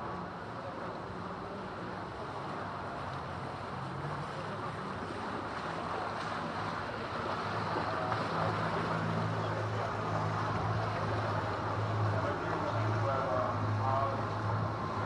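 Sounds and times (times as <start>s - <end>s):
motorboat engine humming: 0.0s - 15.0s.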